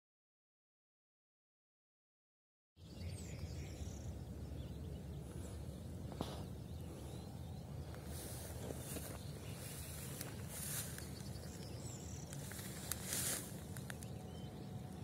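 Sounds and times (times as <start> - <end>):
faint bird chirps: 2.8 - 15.0
steady low rumble: 2.8 - 15.0.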